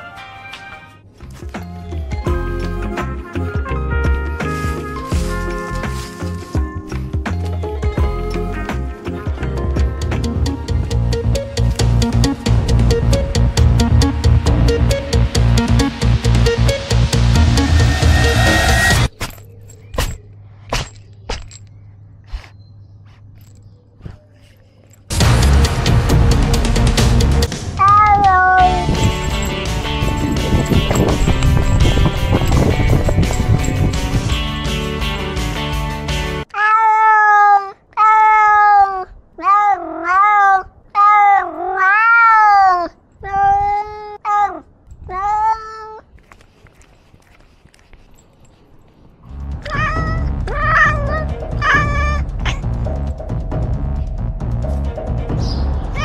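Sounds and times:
cat paws scraping soil and leaves: 4.2 - 8.4, 45.6 - 51.2
electronic music: 6.5 - 19.1, 25.1 - 27.8
cat meowing loudly: 27.8 - 29.0, 36.5 - 46.0, 49.6 - 52.6.

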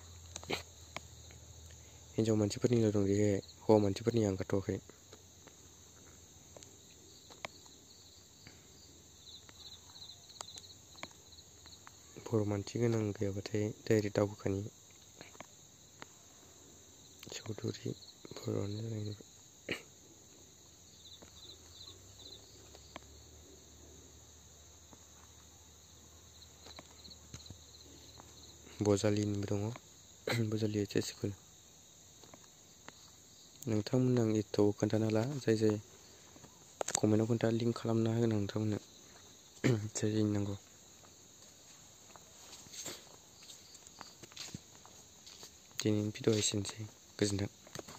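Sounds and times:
insect chirping trills: 0.0 - 47.9.

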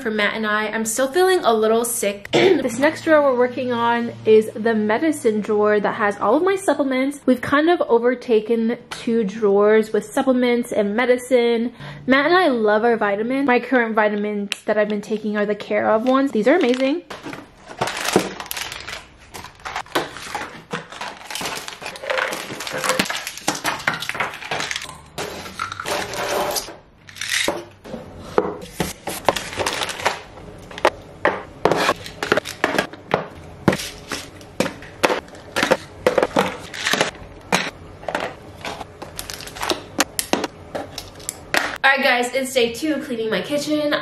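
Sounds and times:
plastic bottles clattering: 16.6 - 27.7, 33.7 - 41.8.

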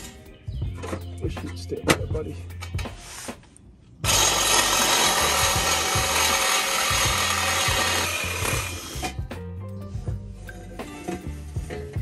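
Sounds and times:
cordless saw cutting metal pipe: 4.0 - 9.2.

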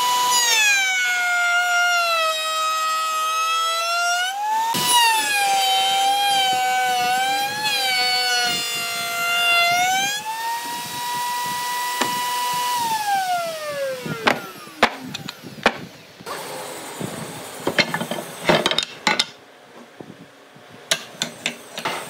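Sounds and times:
power tool motor whining: 0.0 - 18.4
sharp knocks: 14.2 - 15.9.

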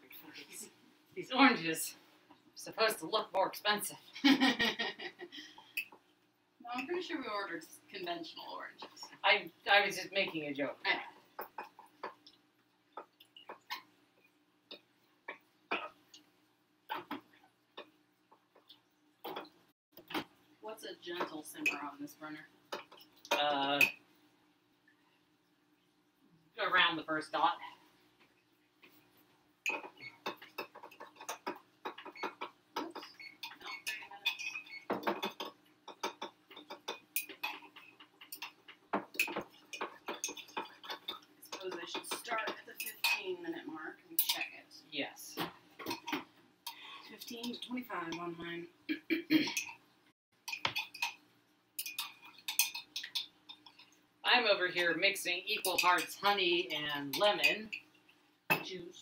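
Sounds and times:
pots and utensils clicking: 29.7 - 43.2, 49.4 - 49.8, 50.4 - 51.2, 51.8 - 54.0.

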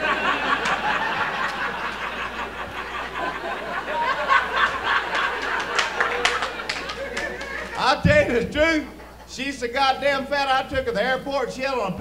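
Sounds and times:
audience laughing: 0.0 - 9.5.

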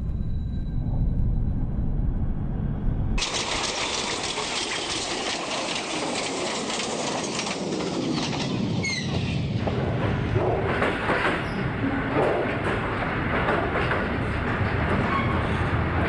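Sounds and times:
low rumble: 0.0 - 5.4
dense hiss with crackle: 3.2 - 7.6.

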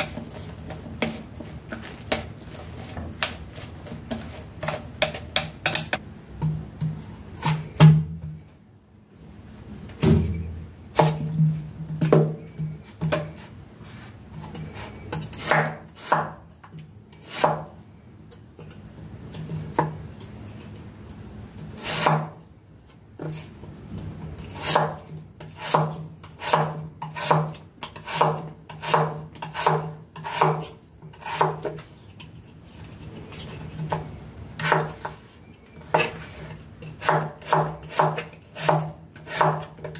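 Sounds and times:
knife slicing potato on board: 14.4 - 16.4, 17.2 - 17.7, 21.8 - 22.4, 24.4 - 31.9, 32.9 - 35.2, 35.9 - 39.9.

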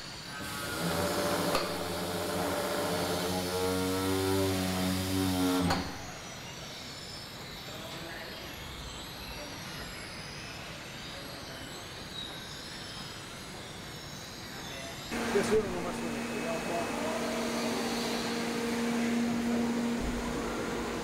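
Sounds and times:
machinery droning hum: 14.9 - 21.0
factory hall noise: 15.1 - 21.0.

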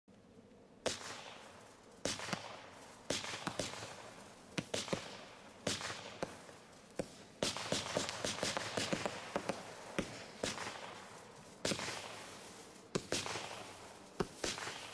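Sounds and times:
firework pops with fizzing hiss: 0.8 - 14.9.

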